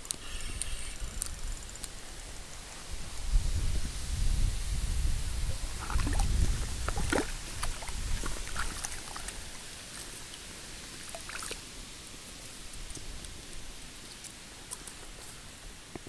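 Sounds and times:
wind rumble on microphone: 0:00.4 - 0:09.6
water splashing and dripping: 0:05.4 - 0:16.0.

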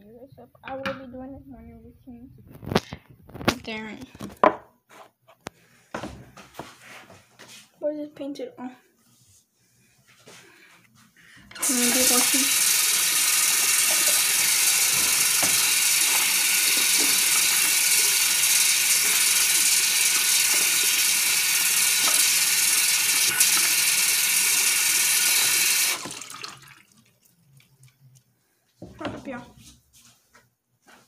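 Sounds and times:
tap water running into sink: 0:11.5 - 0:28.0
hands being washed: 0:11.6 - 0:28.4.

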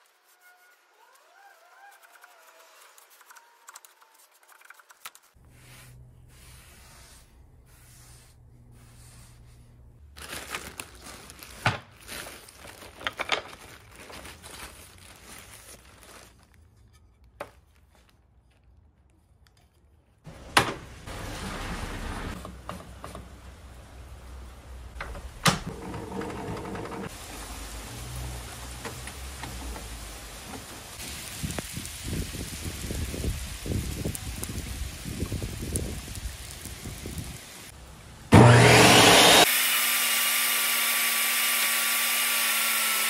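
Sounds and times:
plastic bag rustling: 0:10.0 - 0:18.6.

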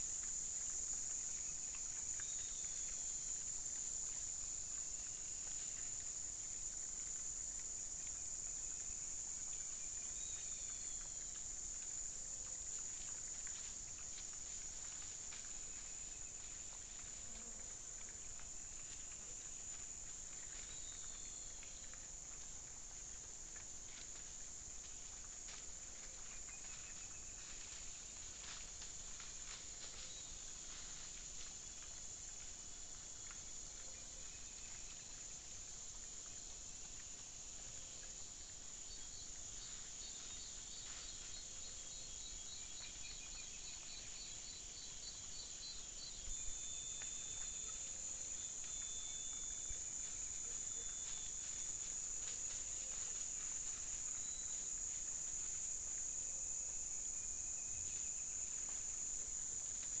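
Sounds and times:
insect chorus: 0:00.0 - 1:00.0
animals rustling through dry leaves: 0:25.7 - 0:31.6, 0:50.0 - 0:55.6.

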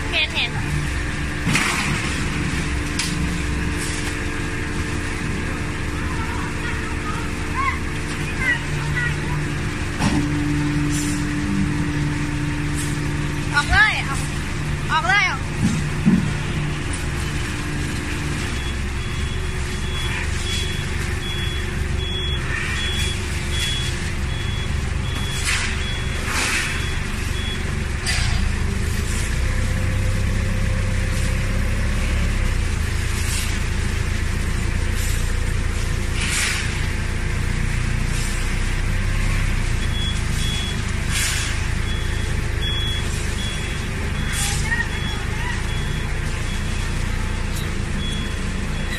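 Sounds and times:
forklift engine running: 0:00.0 - 0:48.9
high-pitched warning beeps: 0:18.4 - 0:27.8, 0:39.8 - 0:48.9.

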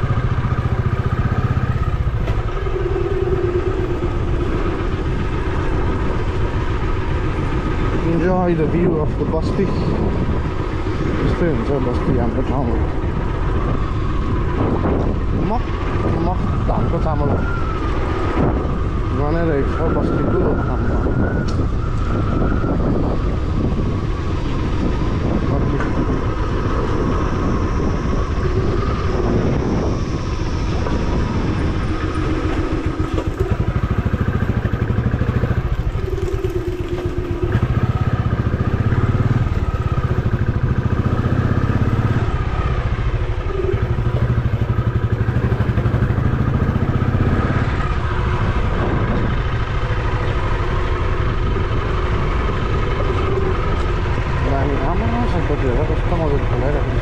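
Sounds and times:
motorcycle engine rumbling: 0:00.0 - 0:57.0.

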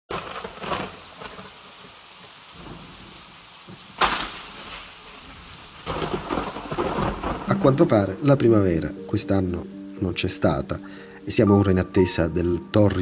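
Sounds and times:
heavy rain: 0:00.1 - 0:13.0
thunder crack: 0:04.0 - 0:08.0.

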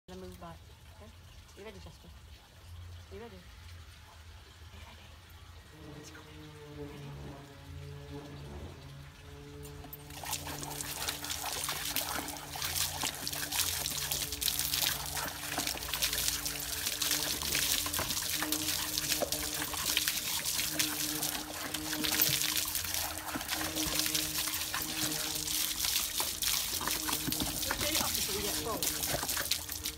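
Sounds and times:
dog lapping water: 0:09.8 - 0:29.9
water splashing onto paving: 0:09.8 - 0:29.9.

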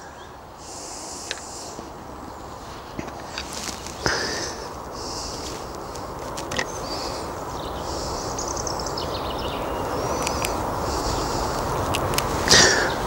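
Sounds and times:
low background rush: 0:00.0 - 0:13.0
small birds chirping and trilling: 0:00.0 - 0:13.0
faint light clicks: 0:10.1 - 0:12.6.

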